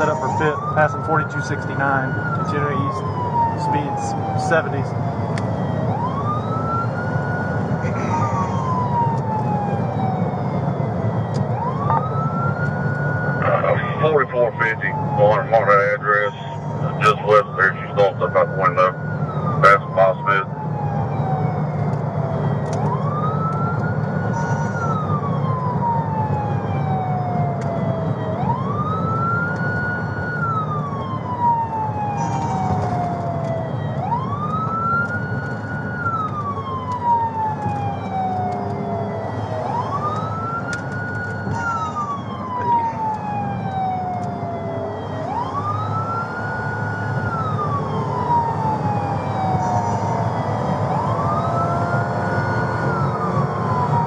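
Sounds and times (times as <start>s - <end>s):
police siren wailing: 0.0s - 54.0s
road rumble: 0.0s - 54.0s
car engine: 27.4s - 54.0s.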